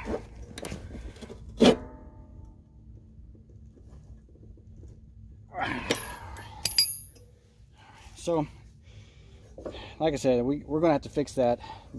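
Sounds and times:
ringing metal clank: 5.9 - 7.2
sharp metallic clinks: 5.9 - 7.3.

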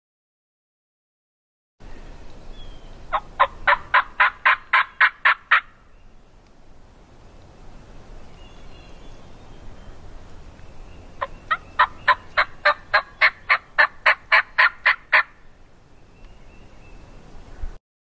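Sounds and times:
turkey yelping: 3.1 - 5.7, 11.2 - 15.4.

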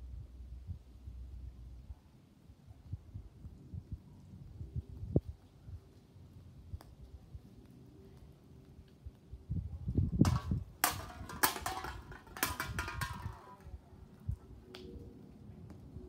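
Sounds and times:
cans clattering onto pavement: 10.2 - 13.7.

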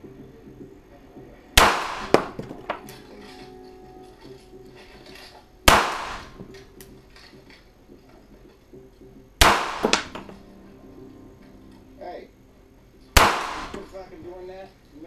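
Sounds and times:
pistol shots in a room: 1.6 - 2.9, 4.8 - 6.7, 9.4 - 10.4, 13.1 - 13.9.

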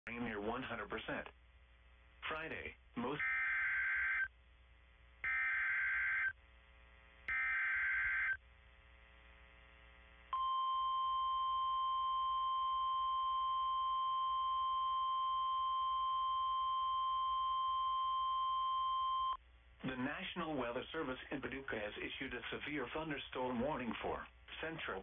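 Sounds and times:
steady alarm tone: 3.1 - 4.3, 5.2 - 6.4, 7.3 - 8.4.

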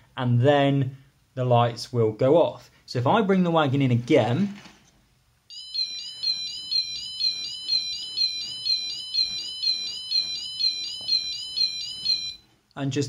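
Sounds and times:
electronic warning warble: 5.5 - 12.4.

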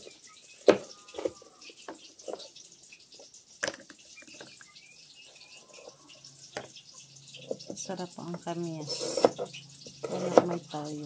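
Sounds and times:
knife cutting on plastic board: 8.9 - 10.6.

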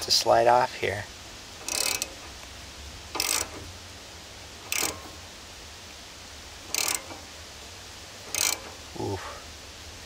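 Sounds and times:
socket ratchet clicking: 1.6 - 2.2, 3.1 - 3.6, 4.7 - 5.2, 6.7 - 7.2, 8.3 - 8.8.

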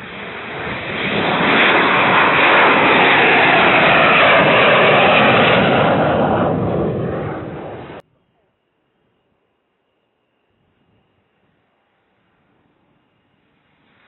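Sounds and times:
jet engine roar overhead: 0.0 - 8.0, 11.4 - 14.0.

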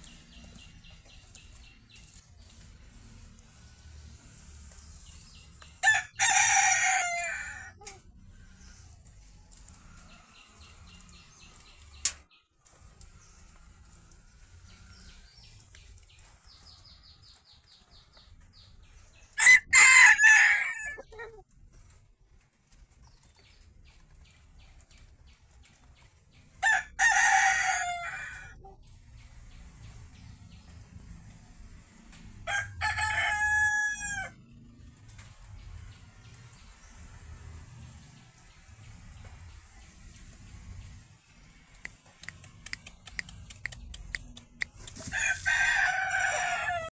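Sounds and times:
roosters crowing: 3.0 - 11.7, 19.3 - 21.4, 26.6 - 28.8, 32.2 - 38.5, 44.9 - 46.9.

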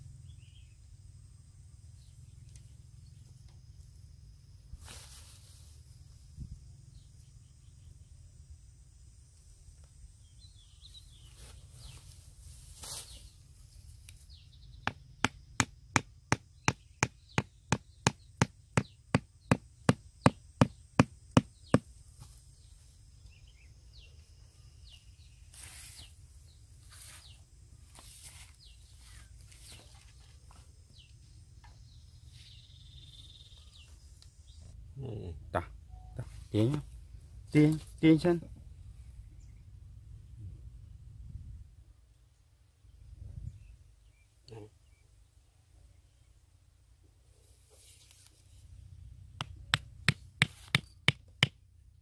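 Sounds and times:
hammer striking wooden stake: 14.8 - 21.9, 49.4 - 51.6.

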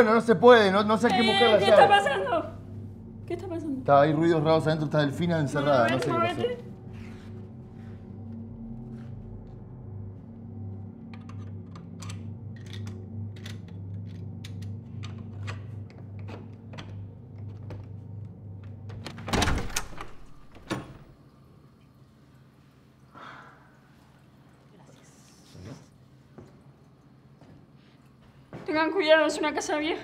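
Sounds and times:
low steady hum: 0.0 - 30.0
door lock clicks and rattles: 18.9 - 21.1.

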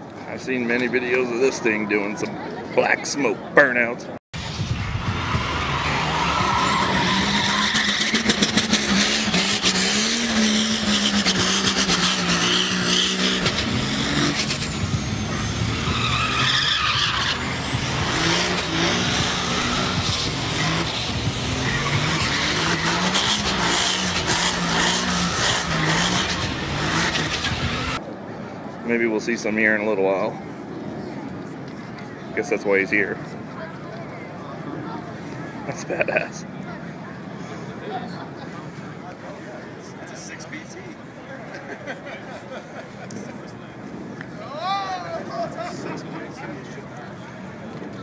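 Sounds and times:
diesel engine revving: 4.4 - 28.0
tyres screeching on pavement: 5.1 - 28.0.

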